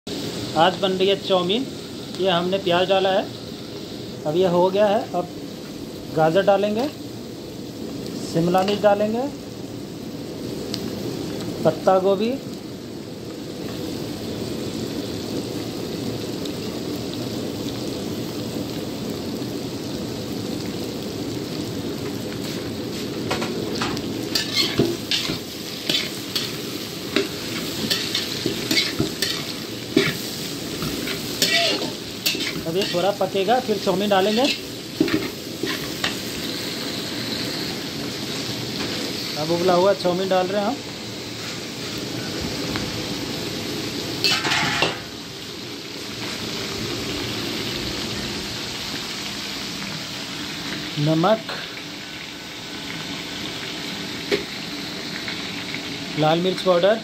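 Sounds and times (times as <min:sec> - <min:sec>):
vegetables sizzling in a wok: 0:00.0 - 0:57.0
spatula scraping a wok: 0:24.3 - 0:33.2, 0:34.0 - 0:36.4, 0:44.2 - 0:45.0.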